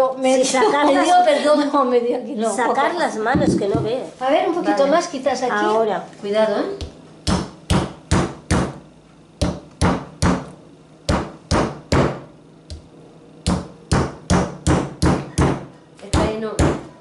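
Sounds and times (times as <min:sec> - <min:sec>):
hammer knocking on cookie cutter: 0:03.3 - 0:03.9, 0:06.8 - 0:08.8, 0:09.4 - 0:12.9, 0:13.5 - 0:17.0.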